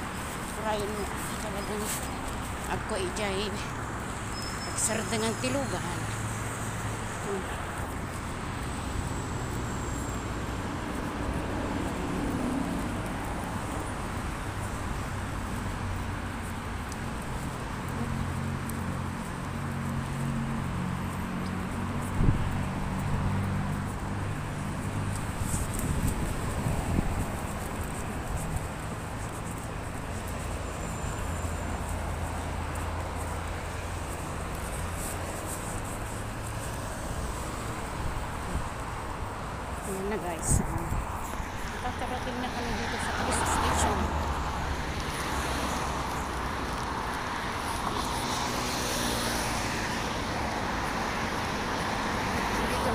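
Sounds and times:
road traffic noise: 0.0 - 52.9
vehicle engine hum: 0.0 - 52.9
wind rumbling on microphone: 20.6 - 30.5, 32.5 - 48.2.

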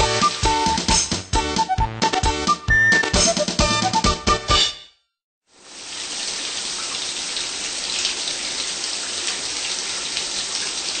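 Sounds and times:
shower spraying water: 0.0 - 1.3, 5.5 - 11.0.

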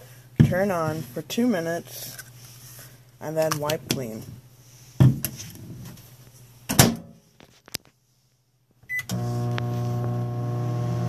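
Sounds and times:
microwave oven humming: 8.9 - 11.0.

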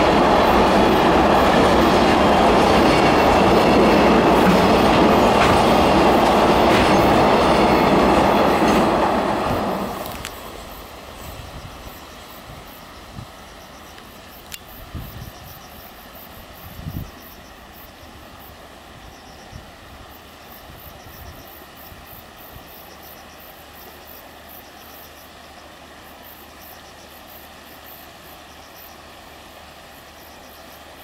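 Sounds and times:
train wheels thumping over rail joints: 0.0 - 10.4
distant train rumble: 0.0 - 31.0.

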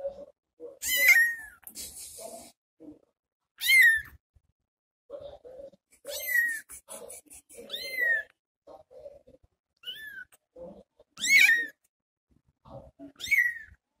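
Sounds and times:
kitten meowing: 0.8 - 1.6, 3.6 - 4.2, 6.0 - 6.7, 7.6 - 8.3, 9.8 - 10.4, 11.2 - 11.8, 13.1 - 13.8.

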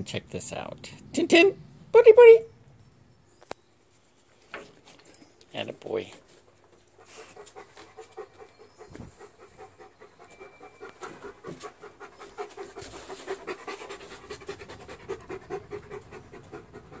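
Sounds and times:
dog panting rapidly: 6.7 - 17.0.

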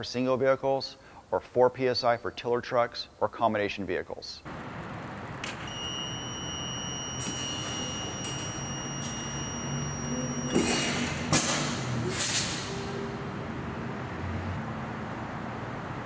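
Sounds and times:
warning buzzer high tone: 5.5 - 11.3
air hissing bursts: 10.6 - 12.9.

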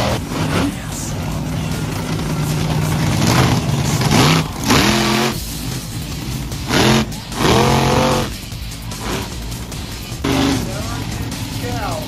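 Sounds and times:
monster truck engine revving: 0.0 - 12.0.

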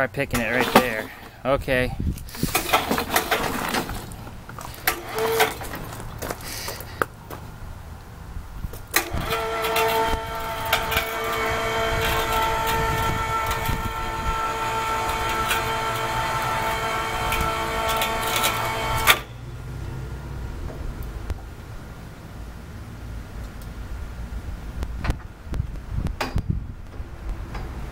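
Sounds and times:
electric hoist motor whine: 4.8 - 6.0, 8.9 - 19.5.

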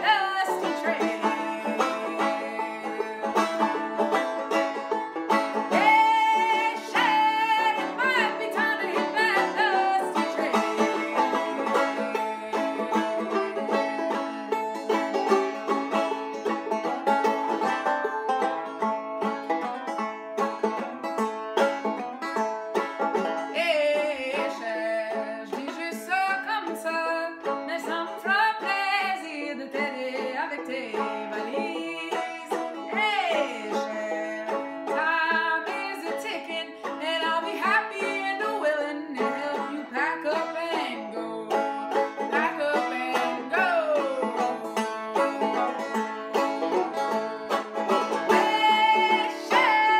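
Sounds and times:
woman singing: 0.0 - 4.1, 5.6 - 13.7, 23.5 - 44.8, 48.2 - 49.9
banjo strummed and picked: 0.0 - 49.9.

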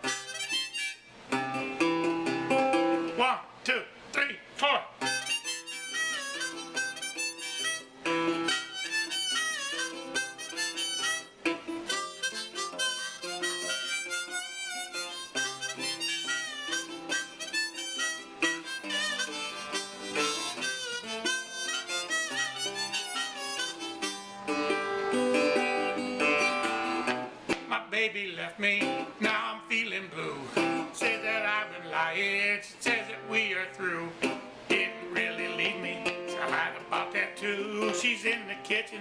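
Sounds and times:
blues harmonica solo: 0.0 - 3.1, 5.0 - 27.4, 30.2 - 39.0
resonator guitar accompaniment: 0.0 - 3.3, 5.0 - 39.0.

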